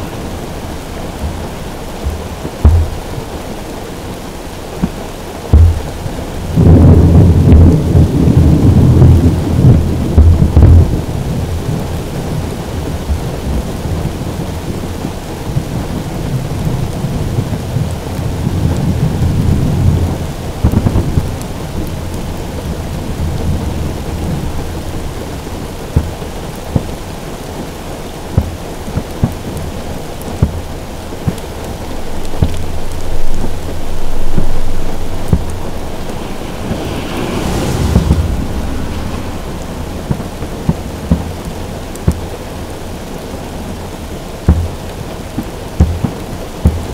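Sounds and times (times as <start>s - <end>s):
rain pattering on car roof: 0.0s - 46.9s
distant firework booms: 4.8s - 8.4s.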